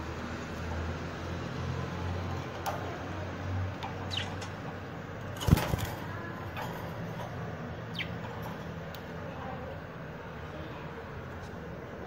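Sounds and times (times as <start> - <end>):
budgerigars chirping: 4.0 - 4.6, 7.8 - 8.3.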